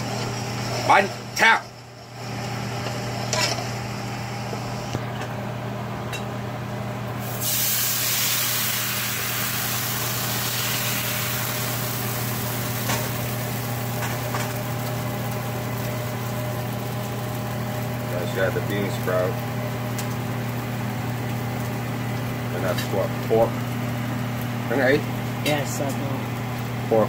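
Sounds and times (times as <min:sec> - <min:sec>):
batter sizzling in frying pan: 0:07.1 - 0:27.0.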